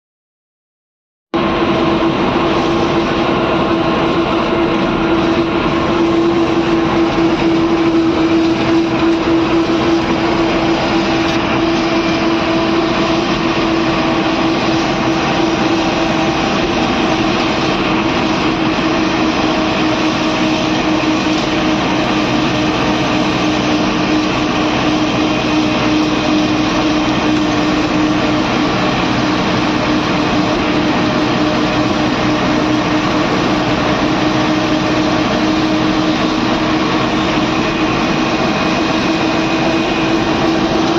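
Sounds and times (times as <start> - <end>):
bus engine drone: 1.3 - 40.9
road noise rushing: 1.4 - 40.9.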